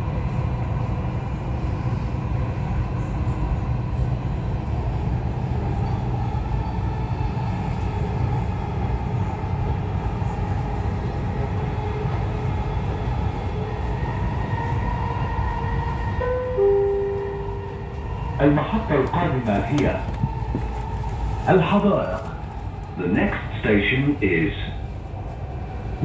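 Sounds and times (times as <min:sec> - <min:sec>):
train rumble: 0:00.0 - 0:26.0
two-note chime: 0:16.2 - 0:17.8.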